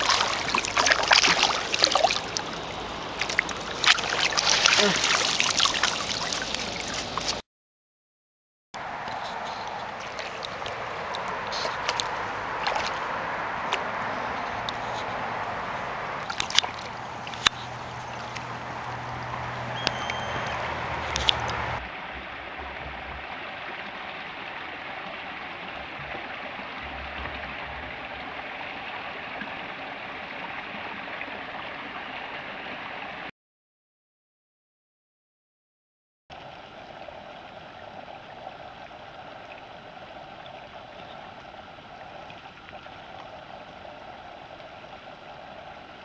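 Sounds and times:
small cascade rushing: 0:00.0 - 0:07.4
stream water over rocks: 0:00.0 - 0:07.4, 0:08.8 - 0:33.3, 0:36.3 - 0:46.0.

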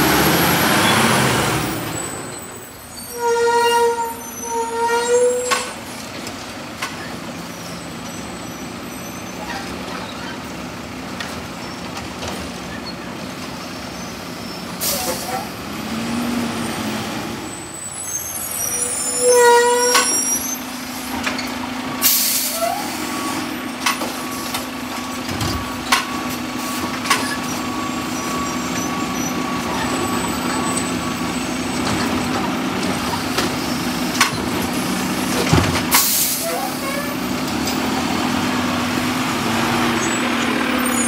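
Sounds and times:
garbage truck engine drone: 0:00.0 - 0:03.1, 0:04.2 - 0:41.0
air brake squeal: 0:01.8 - 0:05.8, 0:07.0 - 0:10.4, 0:13.8 - 0:15.6, 0:17.4 - 0:25.2, 0:25.8 - 0:31.9, 0:35.9 - 0:37.3
knocks and clunks from bin and arm: 0:35.4 - 0:36.0.

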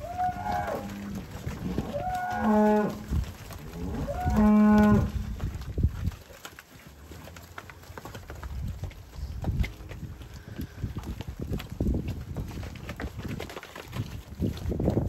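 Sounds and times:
cattle mooing: 0:00.0 - 0:05.4.

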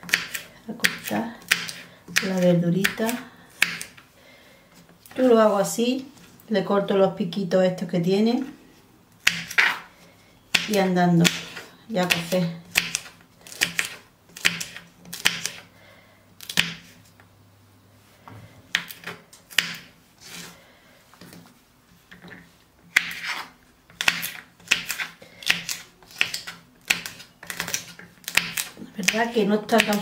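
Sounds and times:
knife chopping on wooden board: 0:18.7 - 0:19.9, 0:22.9 - 0:30.0.

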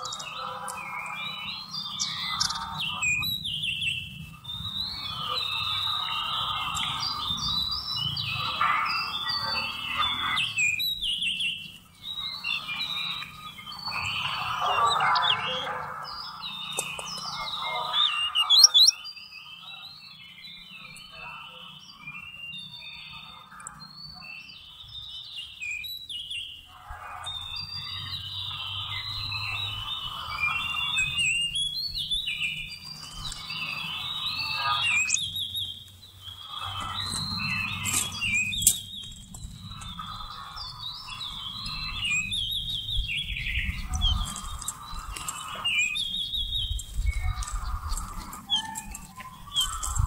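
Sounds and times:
songbird singing: 0:00.0 - 0:50.0.

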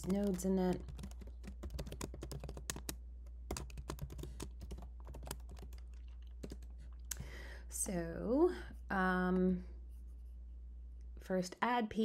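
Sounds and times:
typing on computer keyboard: 0:00.0 - 0:07.0.

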